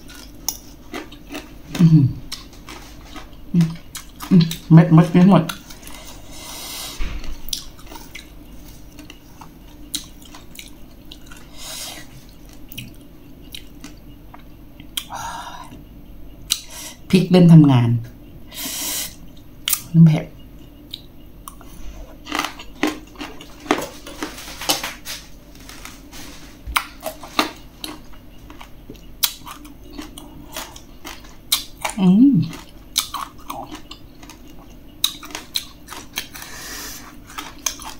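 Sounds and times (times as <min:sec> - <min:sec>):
wet chewing sounds: 0:00.0 - 0:04.7, 0:20.9 - 0:25.2, 0:26.7 - 0:37.9
chewing clicks: 0:26.8 - 0:36.5.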